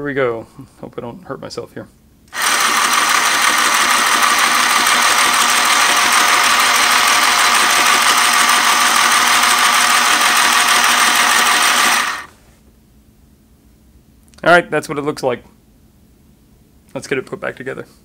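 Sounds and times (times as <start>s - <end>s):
sewing machine motor buzzing: 2.3s - 12.3s.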